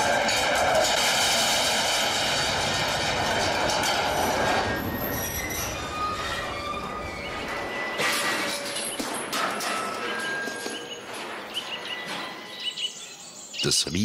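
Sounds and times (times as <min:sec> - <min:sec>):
iron ball rolling on steel rails: 0:00.0 - 0:13.0
metallic ringing and squeal: 0:03.3 - 0:13.5.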